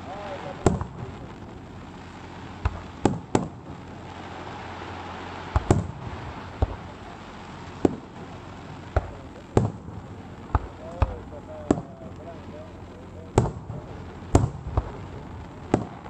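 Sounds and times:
fireworks bursting: 0.0s - 16.0s.

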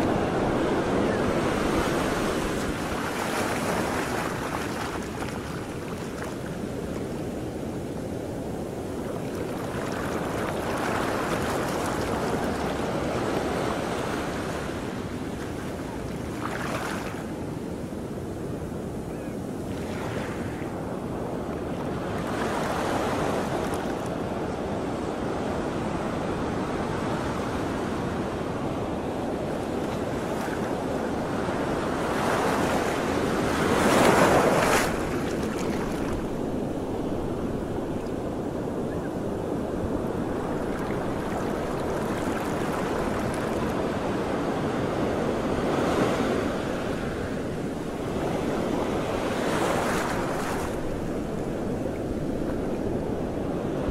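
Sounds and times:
sea waves splashing: 0.0s - 17.3s, 29.2s - 53.9s
wind rumbling on microphone: 0.0s - 53.9s.

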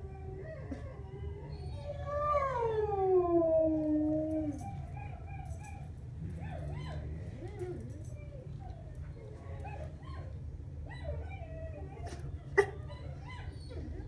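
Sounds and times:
dog howling: 0.0s - 9.0s
dog whining: 0.0s - 14.0s.

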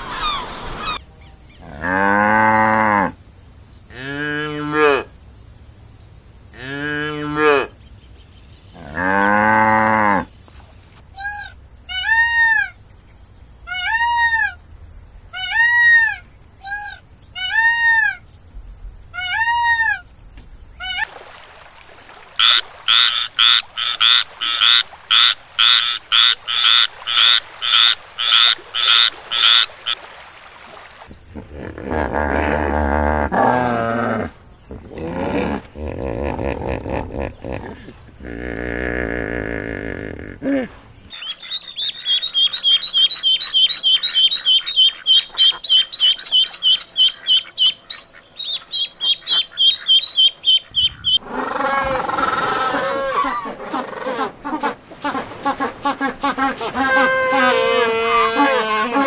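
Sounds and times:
peafowl calling: 0.0s - 1.0s, 11.2s - 12.8s, 13.7s - 14.6s, 15.3s - 18.2s, 19.2s - 20.0s, 22.4s - 30.0s, 41.1s - 59.0s
cattle mooing: 31.4s - 40.4s.

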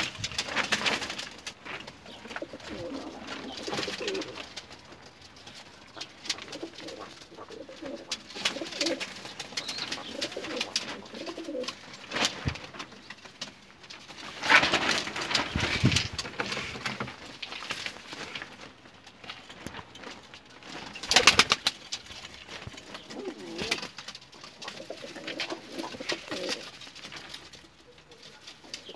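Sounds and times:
pigeons cooing: 1.9s - 4.7s, 5.9s - 11.8s, 22.7s - 26.8s, 27.7s - 28.9s.

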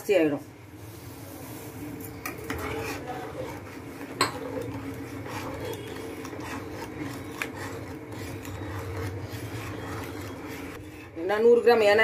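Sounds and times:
spoon scraping pot bottom: 2.3s - 11.3s
spoon clinking on pot: 4.1s - 4.4s.

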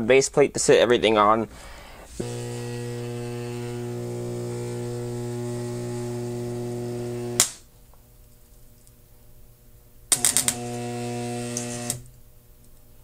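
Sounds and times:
transformer humming: 2.0s - 7.4s.

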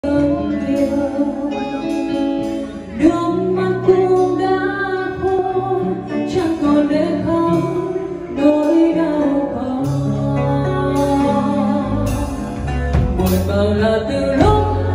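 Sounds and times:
acoustic guitar: 0.0s - 14.9s
electric bass: 0.0s - 14.9s
electric guitar: 0.0s - 14.9s
keyboard: 0.0s - 14.9s
person singing into microphone: 0.0s - 14.9s.

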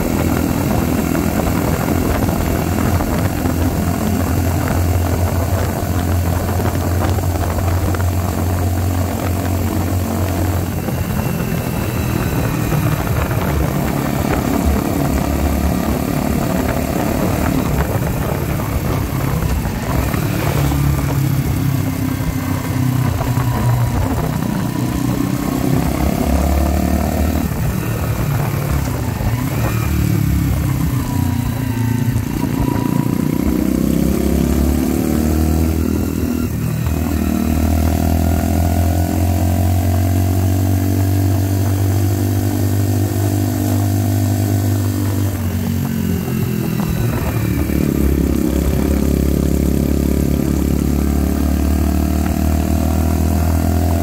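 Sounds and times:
wind rushing: 0.0s - 33.3s
motorcycle engine riding: 0.0s - 54.0s.

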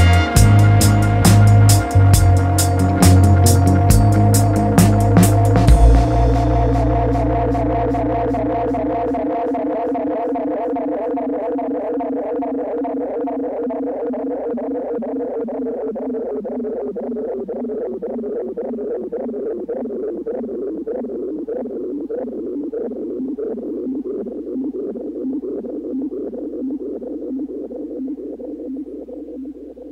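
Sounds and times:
filtered dub reggae instrumental: 0.0s - 11.3s.

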